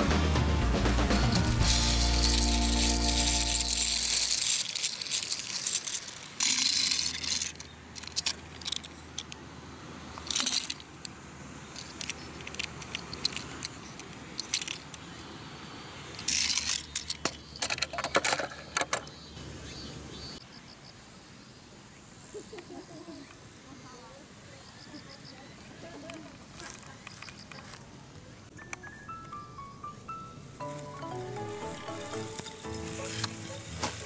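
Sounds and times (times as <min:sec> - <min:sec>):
toy truck wheels rattling: 0:01.0 - 0:09.4, 0:10.1 - 0:15.1, 0:16.1 - 0:19.1, 0:31.6 - 0:34.0.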